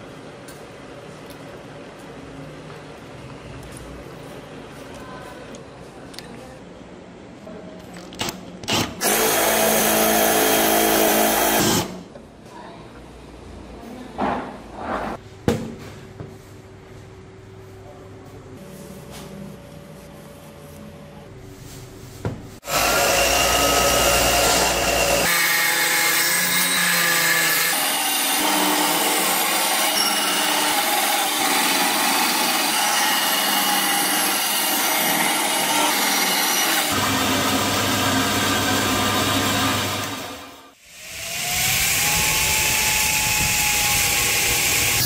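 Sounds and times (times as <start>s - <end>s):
bandsaw cutting wood: 8.8s - 12.0s, 22.6s - 45.0s.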